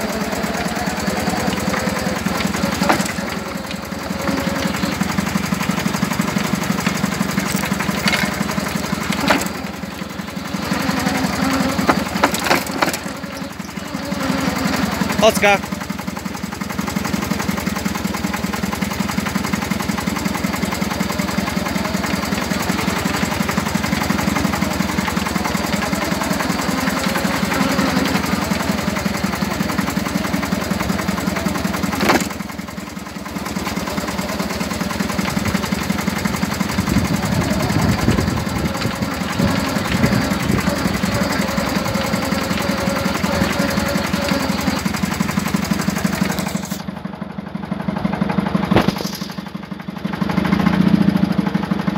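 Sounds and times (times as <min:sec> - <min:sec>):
engine running with pulsing beat: 0:00.0 - 0:51.9.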